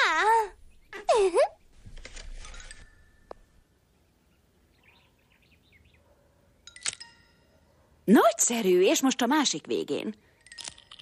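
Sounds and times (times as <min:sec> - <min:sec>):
faint bird chirps: 0:04.0 - 0:06.4.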